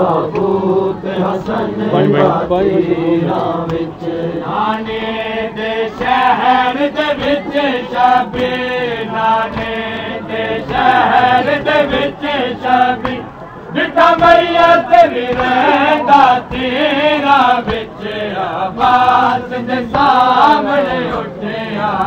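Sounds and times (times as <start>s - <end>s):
men chanting lament: 0.0s - 22.0s
hands slapping chests: 15.2s - 15.7s.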